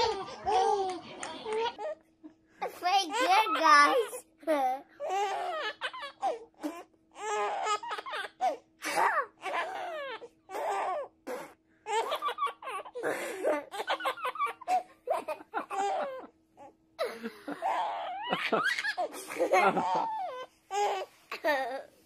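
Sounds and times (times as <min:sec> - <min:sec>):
baby laughing: 0:00.0 - 0:02.1, 0:03.1 - 0:04.2, 0:11.9 - 0:16.3, 0:17.0 - 0:21.9
faint steady hum: 0:00.0 - 0:22.0
boy giggling and babbling: 0:02.6 - 0:05.5.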